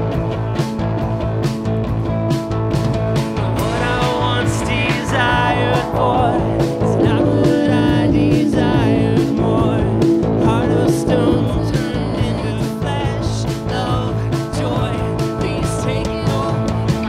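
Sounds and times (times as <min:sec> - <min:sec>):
bass guitar: 0:00.0 - 0:17.0
drums: 0:00.0 - 0:17.0
guitars: 0:00.0 - 0:17.0
person singing: 0:03.4 - 0:17.0.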